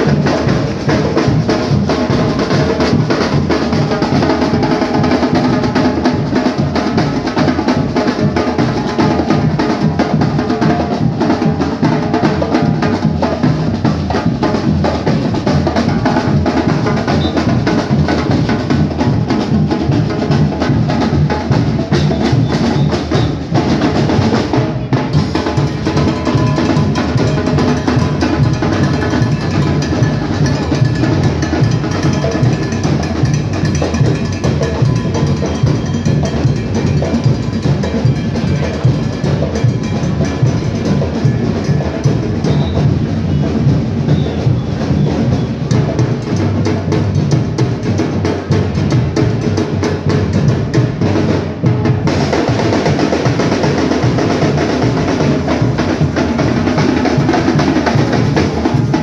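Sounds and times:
music with dense drumming: 0:00.0 - 0:59.0.

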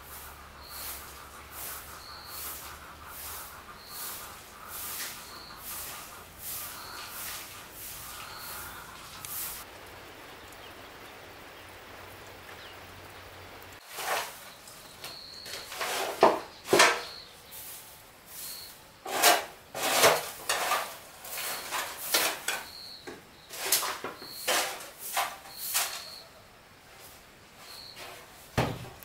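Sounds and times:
scraping and rubbing strokes: 0:00.0 - 0:09.7, 0:13.8 - 0:22.8, 0:23.4 - 0:26.2.

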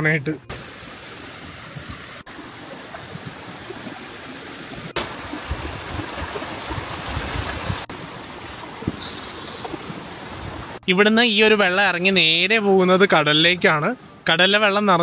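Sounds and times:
stream rushing over rocks: 0:00.5 - 0:10.8.

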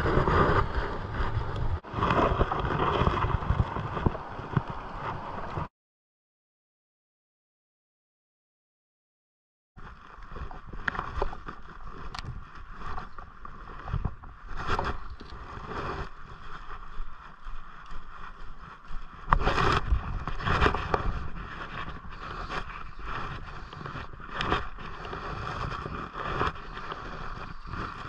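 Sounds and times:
wind gusts on microphone: 0:00.0 - 0:05.7, 0:09.8 - 0:28.0
river water running: 0:02.6 - 0:05.7.

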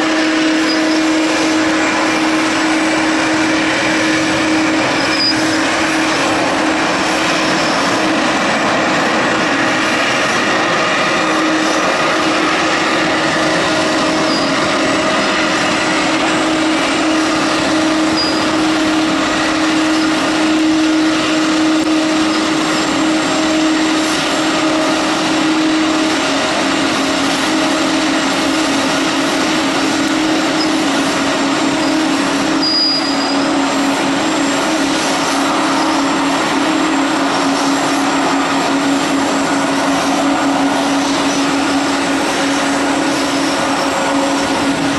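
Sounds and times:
jet engines idling: 0:00.0 - 0:44.9.

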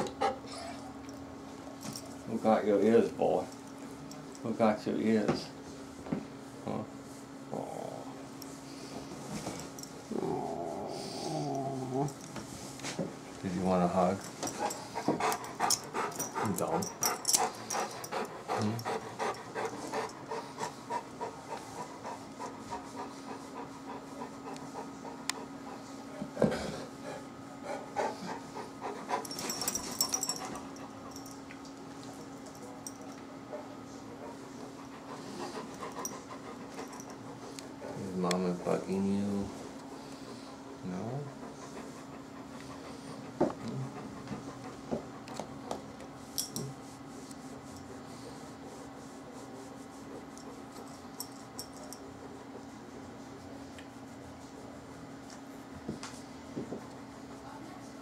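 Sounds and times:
dog panting: 0:00.0 - 0:00.8, 0:13.8 - 0:31.4, 0:32.6 - 0:45.8
steady low hum: 0:00.0 - 0:58.0
collar tag jingle: 0:29.2 - 0:31.4
hand rubbing dog fur: 0:46.2 - 0:56.4.

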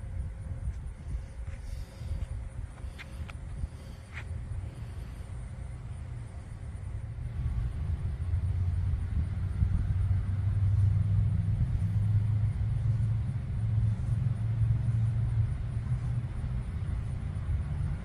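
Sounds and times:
faint wavering hum: 0:00.0 - 0:18.0
vehicle engine rumbling: 0:00.0 - 0:18.0.

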